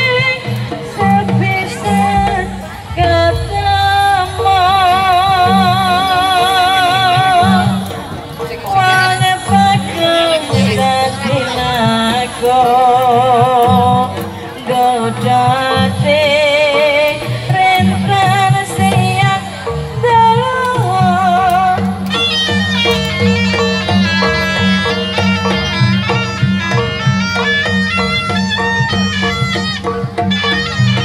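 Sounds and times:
barrel drums: 0:00.0 - 0:31.0
person singing ornamented melody: 0:01.0 - 0:07.9.

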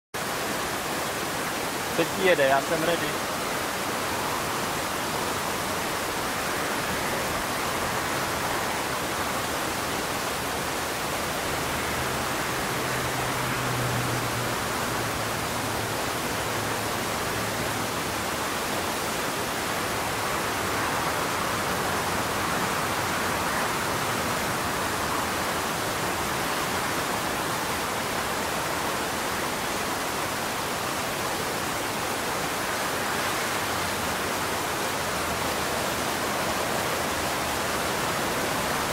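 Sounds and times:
steady rushing noise: 0:00.2 - 0:38.9.

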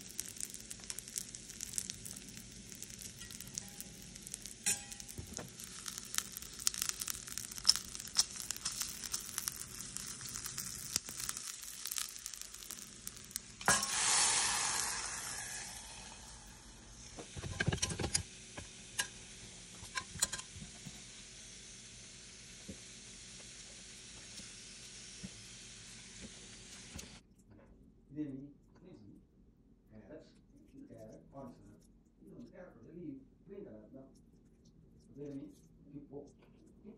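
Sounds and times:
seeds sizzling in hot oil: 0:00.0 - 0:27.2
loud hiss: 0:12.9 - 0:19.8.

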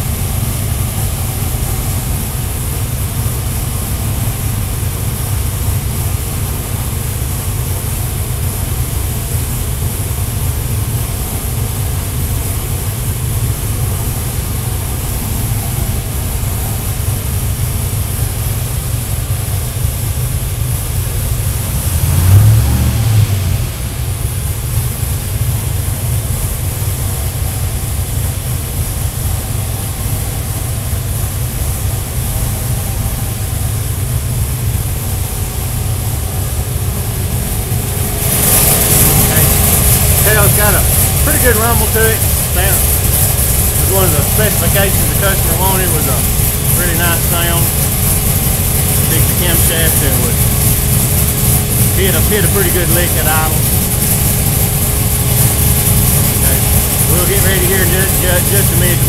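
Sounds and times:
supercharged engine idling: 0:00.0 - 0:59.0
engine revving: 0:21.3 - 0:25.9, 0:34.7 - 0:59.0.

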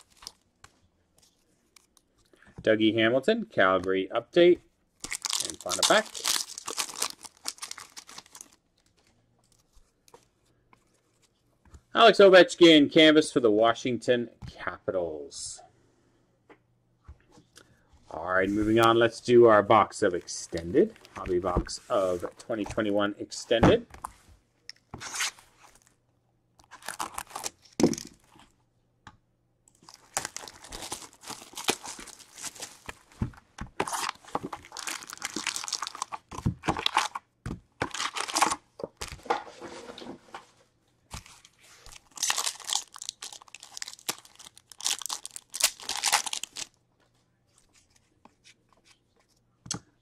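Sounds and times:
wrapping tearing and crinkling: 0:00.0 - 0:00.5, 0:05.0 - 0:09.7, 0:26.6 - 0:28.4, 0:29.7 - 0:33.2, 0:33.8 - 0:37.2, 0:37.8 - 0:39.2, 0:41.1 - 0:46.8.

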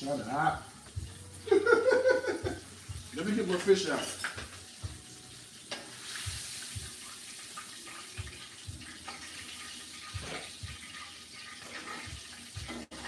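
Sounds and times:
hot oil sizzling in a frying pan: 0:00.0 - 0:13.0.

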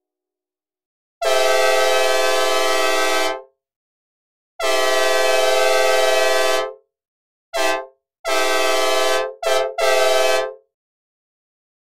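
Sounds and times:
train horn chord blasts: 0:01.2 - 0:03.4, 0:04.6 - 0:06.7, 0:07.6 - 0:10.6.

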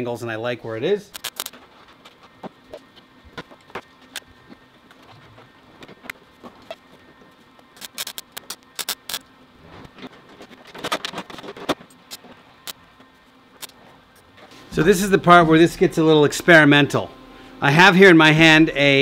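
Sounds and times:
welding crackle: 0:01.2 - 0:02.2, 0:07.7 - 0:09.3.

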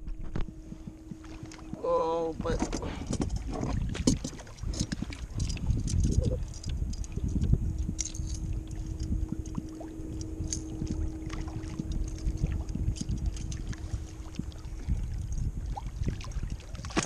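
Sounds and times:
water lapping against kayak hull: 0:00.0 - 0:17.0
wind rumble on microphone: 0:00.0 - 0:17.0.

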